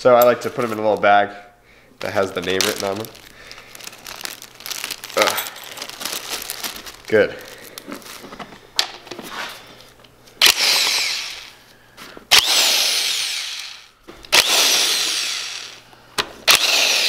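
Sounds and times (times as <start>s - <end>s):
drill trigger click: 10.4s - 11.4s, 12.3s - 15.5s, 16.5s - 17.0s
cordless drill spinning bolts: 10.4s - 11.5s, 12.3s - 15.8s, 16.4s - 17.0s.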